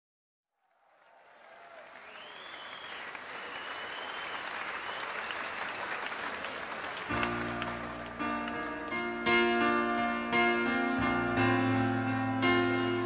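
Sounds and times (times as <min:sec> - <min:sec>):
crowd applause and cheering: 0:00.6 - 0:09.3
faint whistles: 0:02.0 - 0:05.8
music: 0:07.1 - 0:13.0.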